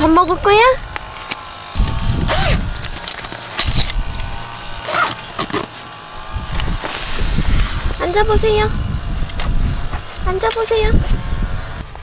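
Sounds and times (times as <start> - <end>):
rustling of cooler bag: 1.8 - 8.0.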